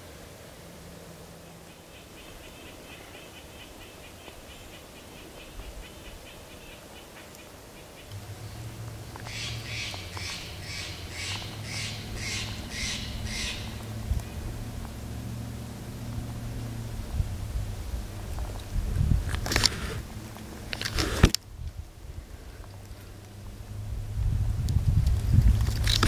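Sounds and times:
low steady rumble: 0:00.0 - 0:26.0
harsh animal calls: 0:01.5 - 0:15.5.

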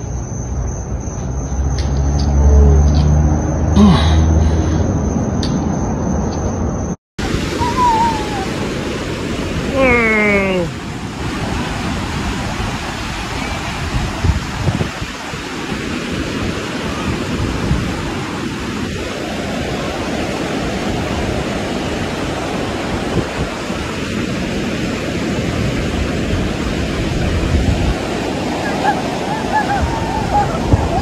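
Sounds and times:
ocean surf breaking: 0:07.2 - 0:31.0
wind buffeting microphone: 0:10.7 - 0:31.0.

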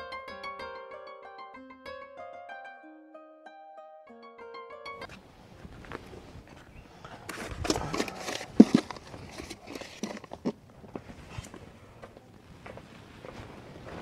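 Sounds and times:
rustling: 0:05.0 - 0:14.0.

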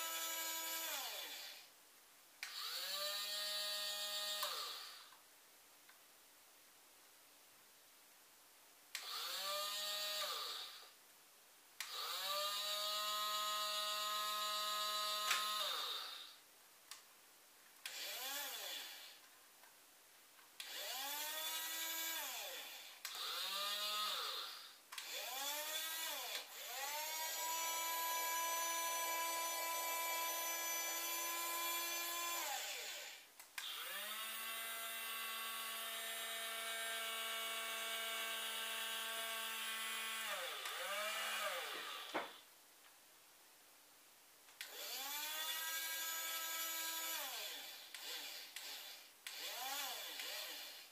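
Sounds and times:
toy electric motor whining: 0:00.0 - 0:01.7, 0:02.4 - 0:05.1, 0:09.0 - 0:10.9, 0:11.8 - 0:16.4, 0:17.8 - 0:19.2, 0:20.6 - 0:42.4, 0:44.6 - 0:50.9.

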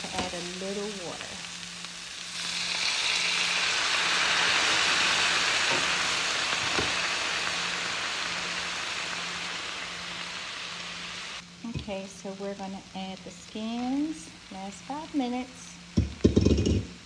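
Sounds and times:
loud sizzle and hiss of steam: 0:00.0 - 0:17.0.

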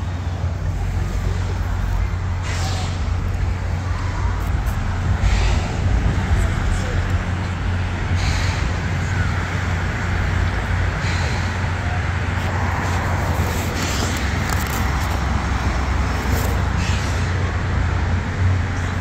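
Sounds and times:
cars passing: 0:00.0 - 0:19.0.

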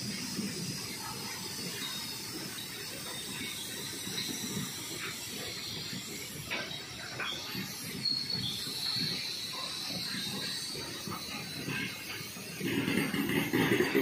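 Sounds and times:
freight wagons rumbling on rails: 0:00.0 - 0:14.0.

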